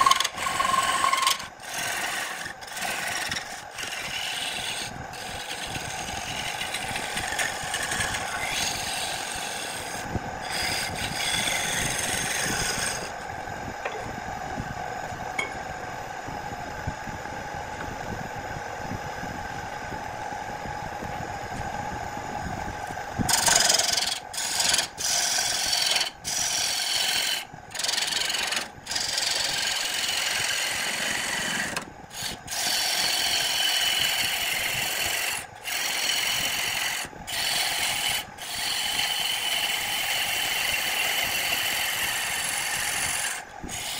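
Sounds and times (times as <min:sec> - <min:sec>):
gouge scraping spinning wood: 0:00.0 - 0:13.3, 0:23.2 - 0:43.9
wood lathe humming: 0:00.0 - 0:14.1, 0:22.8 - 0:43.9.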